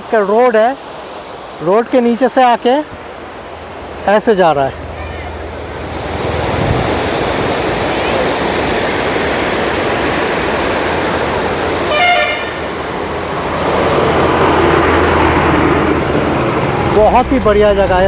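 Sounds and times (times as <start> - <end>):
road traffic: 0.0 - 18.0
waterfall rushing: 0.0 - 18.0
vehicle horn toot: 11.9 - 12.7.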